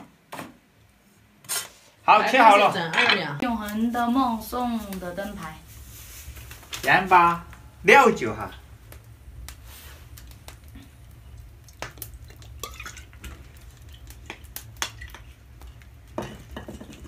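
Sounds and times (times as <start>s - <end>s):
metal utensils and bowls clinking: 2.7s - 3.4s.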